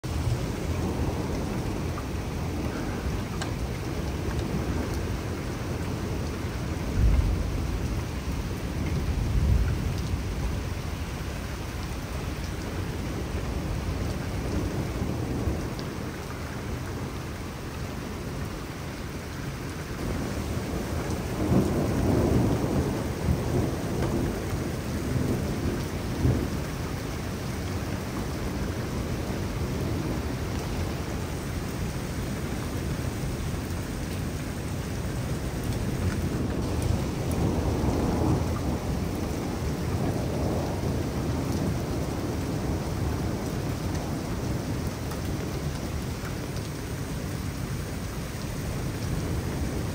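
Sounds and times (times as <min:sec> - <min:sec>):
steady rain: 0:00.0 - 0:49.9
thunder rolling: 0:35.7 - 0:43.4.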